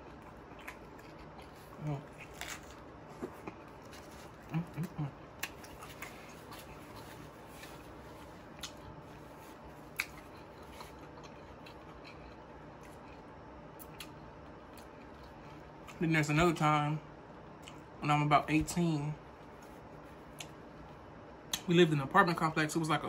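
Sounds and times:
chewing with crunches: 0:00.0 - 0:16.0.

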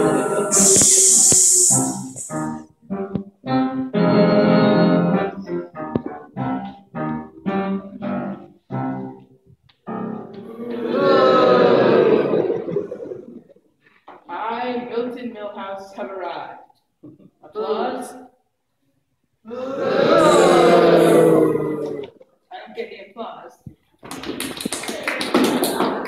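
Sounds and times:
brief high hiss: 0:00.0 - 0:02.6
keyboard playing chords: 0:00.0 - 0:09.3.

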